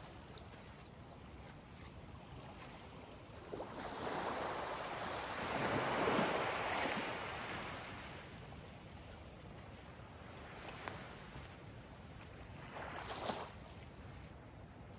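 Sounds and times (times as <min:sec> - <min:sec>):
wave washing onto sandy beach: 0:03.3 - 0:11.6.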